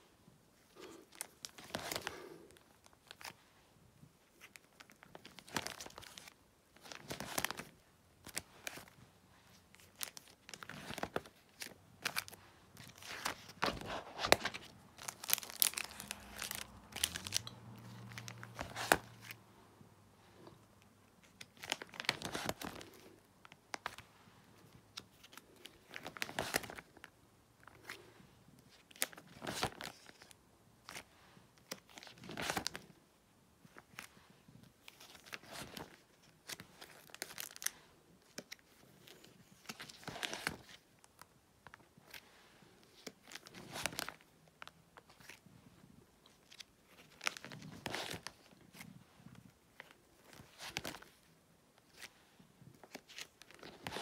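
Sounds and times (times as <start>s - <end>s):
plastic sleeve pages crinkling: 0.6s - 3.4s, 4.3s - 19.4s, 21.2s - 28.0s, 28.6s - 33.0s, 34.8s - 45.5s, 46.2s - 54.0s.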